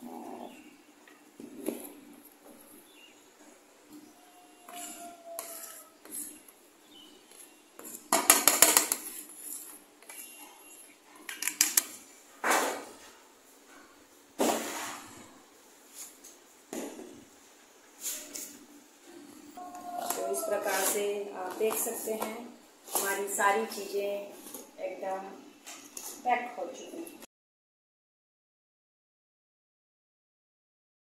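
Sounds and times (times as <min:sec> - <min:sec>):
plastic spoon scraping steel plate: 0:04.7 - 0:06.4, 0:07.4 - 0:10.8, 0:20.0 - 0:21.1.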